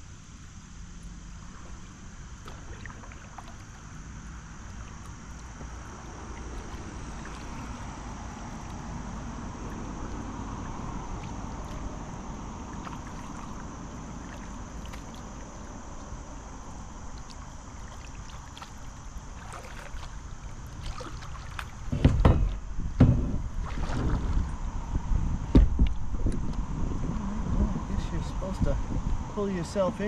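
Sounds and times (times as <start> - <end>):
wind: 0.0 - 30.0
light water noise: 0.1 - 26.7.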